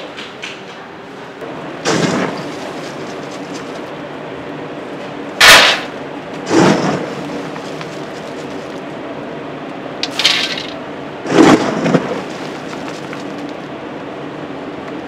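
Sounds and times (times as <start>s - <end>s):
grain rattling into metal bowl: 10.0s - 10.8s.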